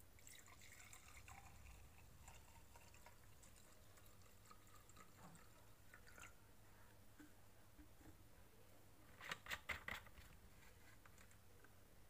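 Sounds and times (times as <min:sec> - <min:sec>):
oil trickling into glass: 0:00.2 - 0:06.4.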